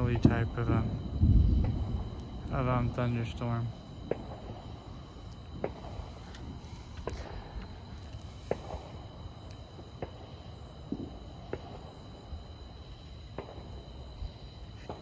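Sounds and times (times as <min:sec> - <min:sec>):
low rumble: 0:00.0 - 0:03.0
high-pitched insect drone: 0:00.0 - 0:15.0.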